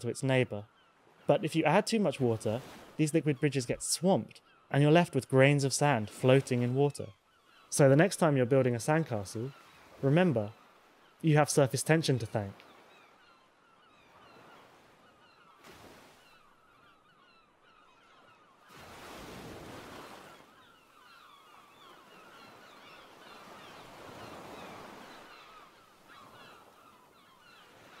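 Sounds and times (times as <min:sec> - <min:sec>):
flock of birds calling: 0:20.0 - 0:28.0.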